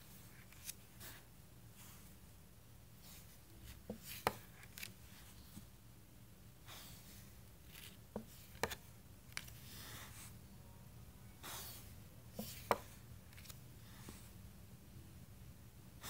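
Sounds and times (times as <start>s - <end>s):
cards sliding swishes: 3.6s - 5.0s.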